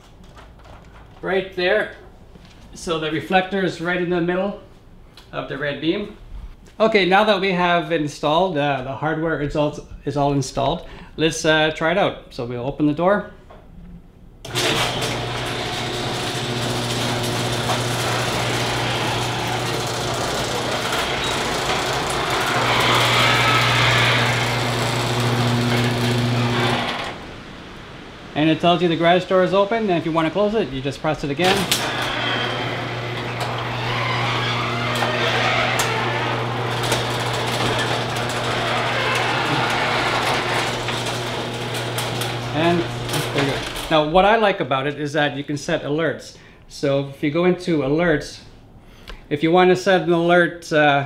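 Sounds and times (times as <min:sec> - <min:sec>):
garage door opener motor humming: 0:14.4 - 0:29.0, 0:31.0 - 0:44.2.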